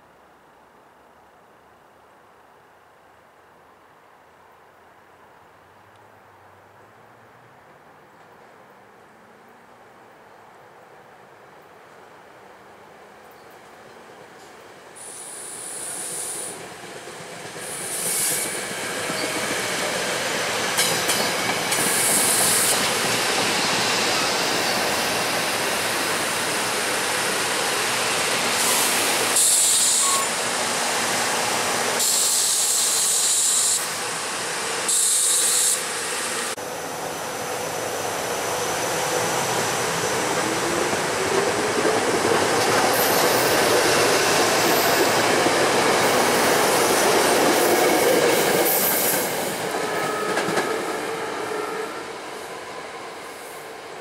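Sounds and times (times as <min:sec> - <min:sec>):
electric train running on rails: 0:13.3 - 0:54.0
high hissing bursts: 0:15.0 - 0:16.6, 0:17.6 - 0:18.7, 0:23.6 - 0:36.6.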